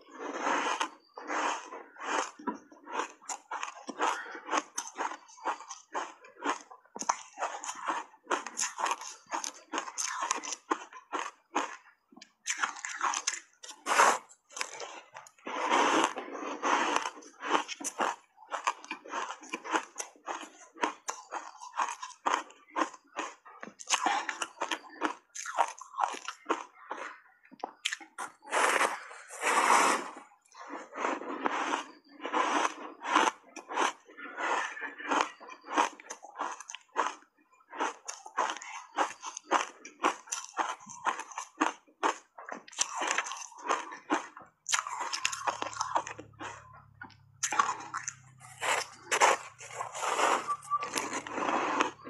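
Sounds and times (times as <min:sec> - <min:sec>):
ice crunching while chewed: 0:00.0 - 0:52.0.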